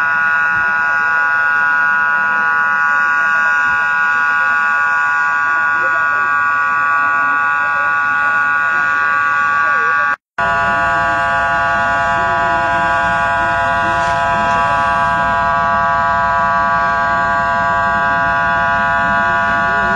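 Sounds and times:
loud steady whine: 0:00.0 - 0:19.9
wavering voices: 0:10.7 - 0:15.7.

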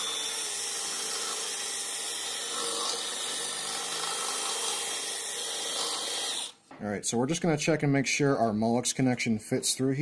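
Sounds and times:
electric drill running: 0:00.0 - 0:06.6.

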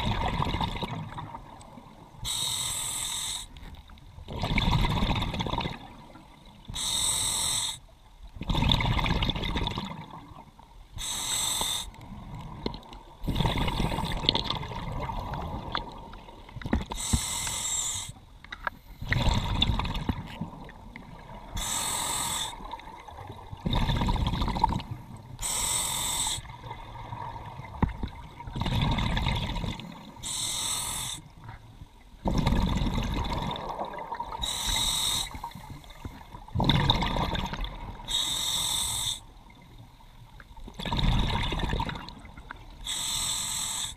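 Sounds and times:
bubbling rumble on exhalation: 0:00.0 - 0:01.3, 0:04.3 - 0:06.0, 0:08.4 - 0:10.2, 0:12.5 - 0:16.0, 0:19.0 - 0:21.4, 0:22.6 - 0:25.0, 0:26.8 - 0:29.9, 0:32.2 - 0:34.4, 0:36.5 - 0:38.0, 0:40.8 - 0:42.2
regulator hiss on inhalation: 0:02.2 - 0:03.6, 0:06.8 - 0:07.8, 0:11.0 - 0:12.0, 0:17.0 - 0:18.2, 0:21.6 - 0:22.6, 0:25.4 - 0:26.5, 0:30.2 - 0:31.3, 0:34.4 - 0:36.1, 0:38.1 - 0:39.3, 0:42.8 - 0:43.9.

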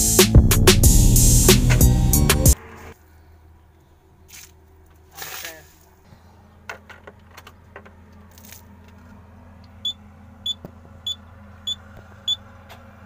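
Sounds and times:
dashboard warning buzzer beeps: 0:09.8 - 0:12.4.

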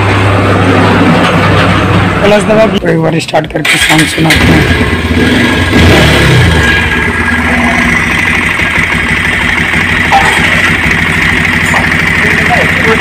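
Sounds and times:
motorcycle engine idling: 0:03.6 - 0:13.0.

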